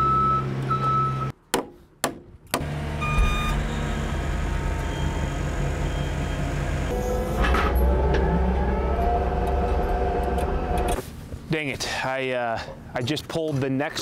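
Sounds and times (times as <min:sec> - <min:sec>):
lift platform whine: 0:02.6 - 0:11.0
scissor lift engine running: 0:02.6 - 0:11.0
alarm beep: 0:03.0 - 0:03.6.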